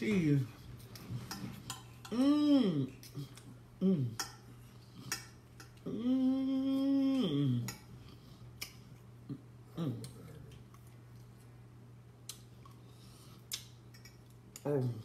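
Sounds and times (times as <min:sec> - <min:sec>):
woman humming: 0:02.0 - 0:04.3, 0:05.7 - 0:07.9, 0:09.7 - 0:10.3
cutlery clicking on plate: 0:13.5 - 0:14.8.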